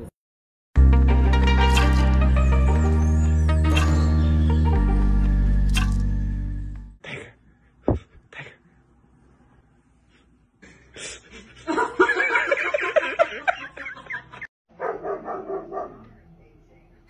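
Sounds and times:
background music: 0.8s - 7.0s.

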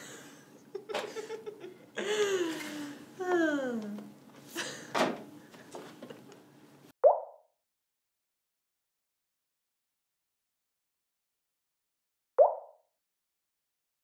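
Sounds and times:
man and woman laughing: 0.0s - 2.8s.

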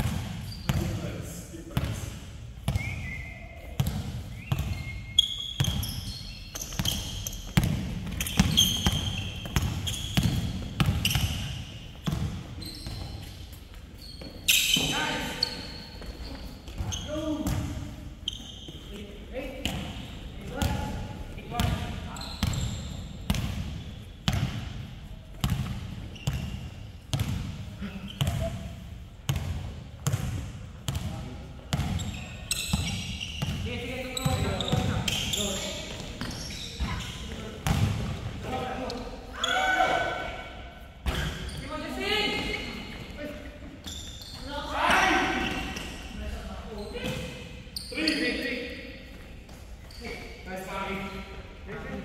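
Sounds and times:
basketball bouncing on court: 0.0s - 1.0s, 3.8s - 13.2s, 19.6s - 28.7s, 29.3s - 38.3s
sneaker squeaks: 0.0s - 1.9s, 2.6s - 24.8s, 25.4s - 28.7s, 30.9s - 52.0s.

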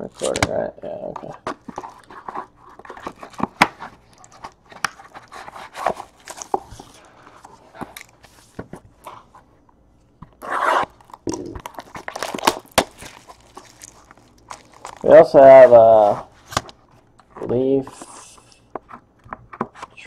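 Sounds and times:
shrink-wrap tearing: 0.0s - 0.6s, 10.5s - 16.6s.

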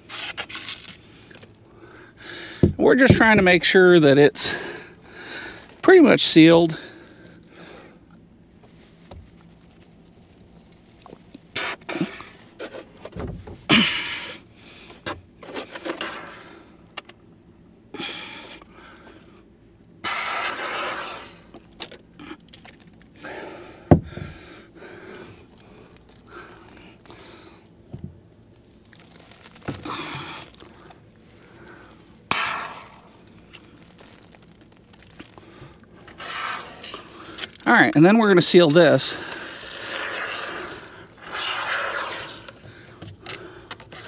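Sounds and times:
foil tape rustling and scraping: 0.0s - 1.6s, 20.0s - 23.2s, 28.5s - 31.0s, 31.7s - 37.7s, 38.3s - 44.0s.

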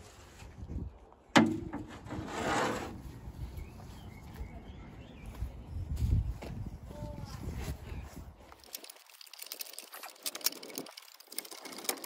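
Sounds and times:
metal panel scraping: 1.4s - 3.1s.

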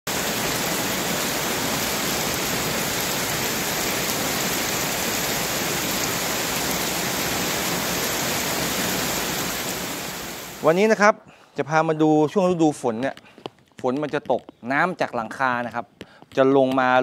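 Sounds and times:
heavy rain on gravel and paving: 0.1s - 10.8s.

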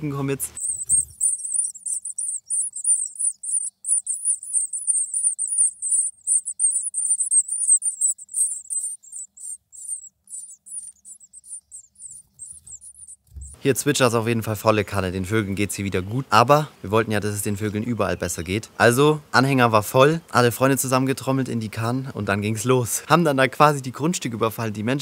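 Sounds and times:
small songbirds twittering: 0.0s - 16.3s.

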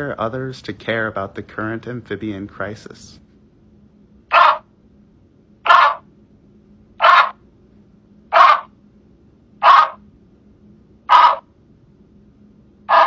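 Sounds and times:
treefrog calling: 4.3s - 4.7s, 5.6s - 6.1s, 7.0s - 7.4s, 8.3s - 8.8s, 9.6s - 10.0s, 11.1s - 11.5s.

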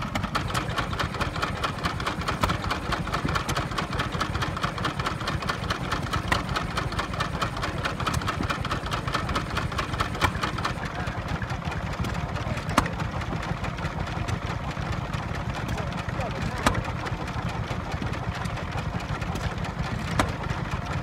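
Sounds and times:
stationary engines running: 0.0s - 21.0s
sharp engine knock: 19.4s - 20.6s.

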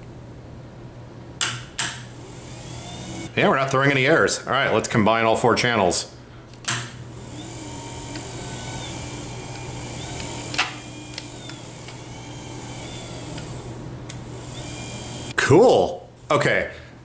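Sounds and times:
wheelchair motors humming: 2.1s - 3.3s, 7.0s - 15.4s
sharp clicks: 8.1s - 14.8s.

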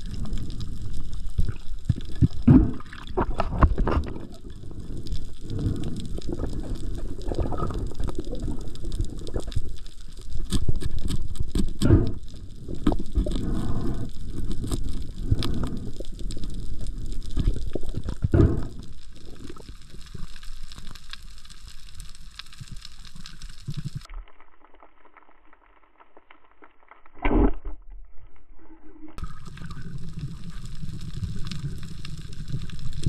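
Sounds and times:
muffled underwater noise: 0.0s - 10.5s, 11.5s - 20.3s, 28.6s - 33.0s.

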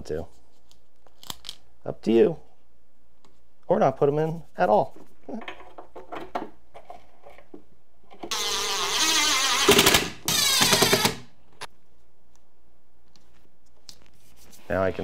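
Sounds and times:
impact driver hammering: 9.6s - 11.2s.

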